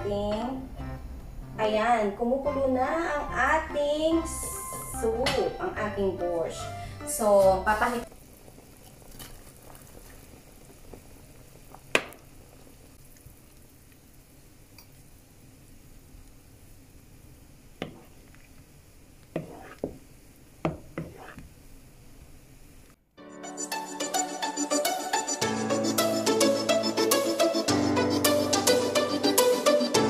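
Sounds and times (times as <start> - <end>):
pot simmering and bubbling: 6.5 - 23.1
spoon knocking on pot: 17.8 - 18.2, 19.4 - 20.0, 20.6 - 21.5.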